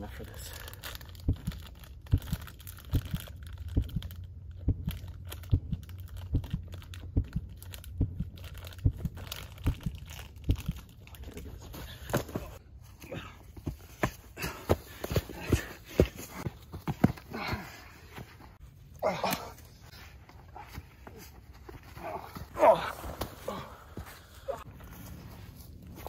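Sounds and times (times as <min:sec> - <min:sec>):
plastic wrapper crinkling and tearing: 0:00.1 - 0:11.5.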